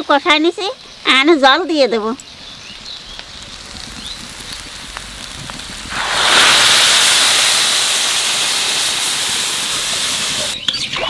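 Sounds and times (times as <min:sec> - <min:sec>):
loud sizzling hiss: 0:00.0 - 0:10.7
water poured into hot pan: 0:02.9 - 0:10.6.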